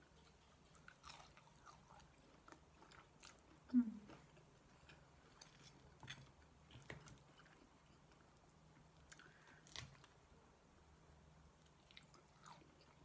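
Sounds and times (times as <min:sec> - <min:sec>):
quiet chewing: 0:00.0 - 0:10.2.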